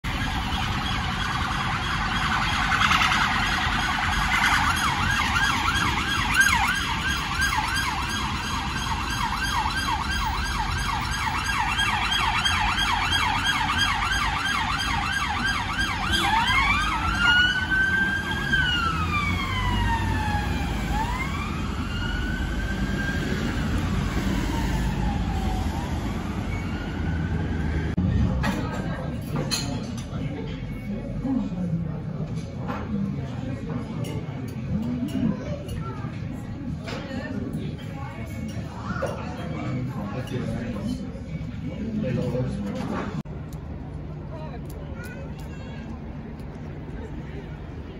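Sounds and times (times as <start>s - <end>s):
police sirens yelping and wailing: 0.0s - 28.4s
low traffic rumble: 0.0s - 47.9s.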